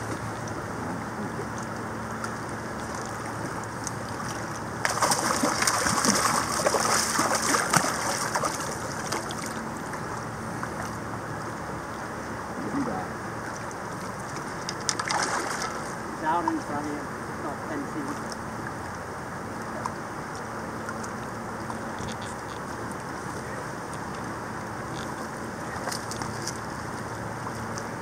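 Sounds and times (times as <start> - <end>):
river water running: 0.0 - 28.0
fish thrashing and splashing: 1.6 - 11.5, 13.4 - 16.6.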